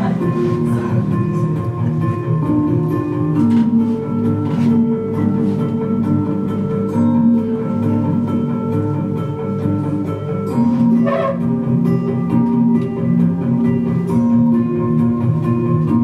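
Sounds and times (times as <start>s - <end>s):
plucked guitar music: 0.0s - 16.0s
guitar strum: 6.5s - 15.3s.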